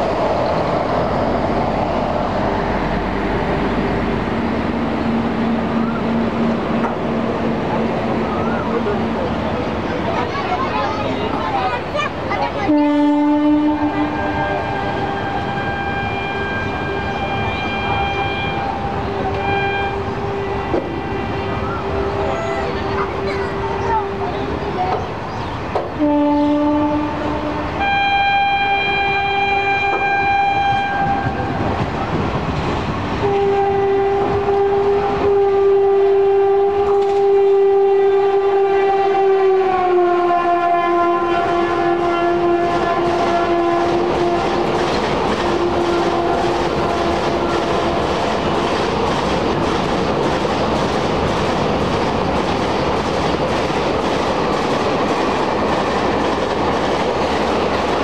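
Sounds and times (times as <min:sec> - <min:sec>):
train coaches rolling on rails: 0:00.0 - 0:58.0
train horn blasts: 0:12.6 - 0:24.5, 0:26.0 - 0:31.6, 0:33.2 - 0:48.6.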